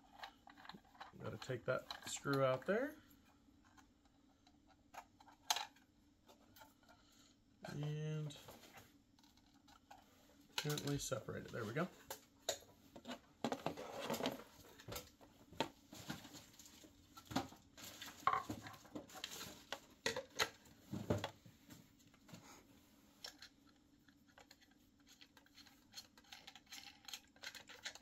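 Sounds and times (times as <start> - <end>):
plastic parts clicking and rattling: 0.0 - 2.8, 3.6 - 7.0, 9.2 - 11.2, 12.0 - 21.4, 23.2 - 28.0.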